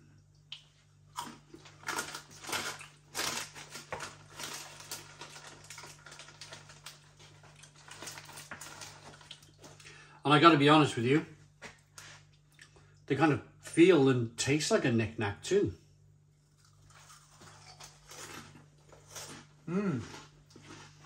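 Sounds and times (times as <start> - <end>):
crunchy snacks being chewed: 0.6 - 9.9, 16.4 - 21.0.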